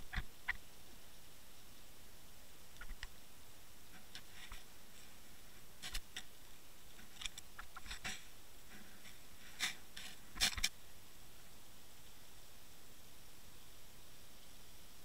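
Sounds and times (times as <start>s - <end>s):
faint underwater clicks and ticks: 0.0s - 0.7s, 2.7s - 3.2s
steady hiss: 0.0s - 15.0s.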